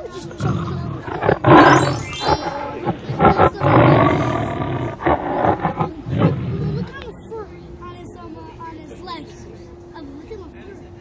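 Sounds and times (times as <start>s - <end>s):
lion roaring: 0.4s - 6.9s.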